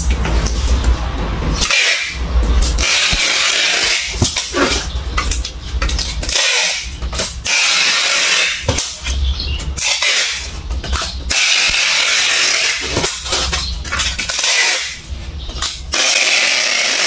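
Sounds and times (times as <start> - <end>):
packing tape unrolling: 9.8 - 15.0.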